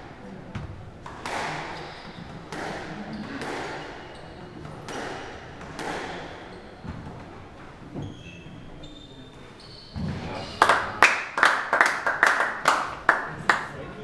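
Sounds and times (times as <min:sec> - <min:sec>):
squash ball strikes: 0:00.6 - 0:01.7, 0:04.8 - 0:06.3.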